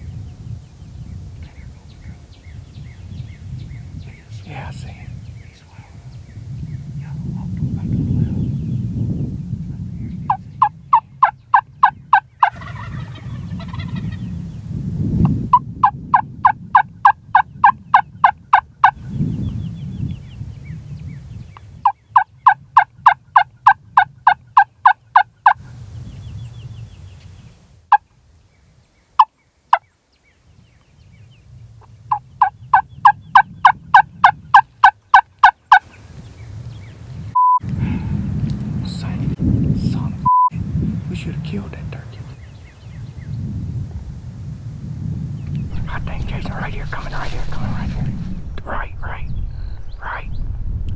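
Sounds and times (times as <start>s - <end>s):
turkey call yelping: 10.3s - 14.1s
short beep: 37.4s - 37.6s, 40.3s - 40.5s
low rumble: 43.6s - 50.9s.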